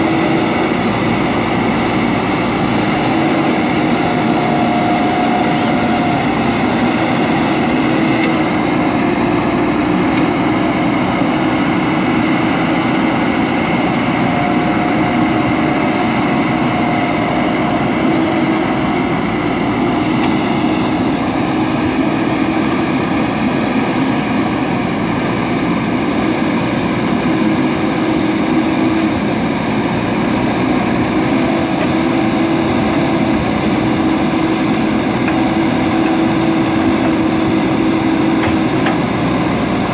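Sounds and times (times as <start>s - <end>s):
backhoe diesel engine running: 0.0s - 39.9s
backhoe arm digging: 30.0s - 39.9s.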